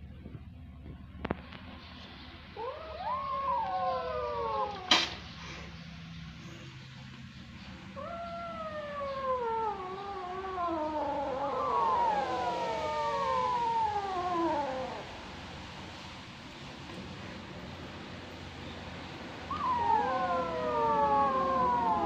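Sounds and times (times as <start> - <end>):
kittens meowing: 2.6 - 5.2, 8.0 - 15.2, 19.5 - 22.0.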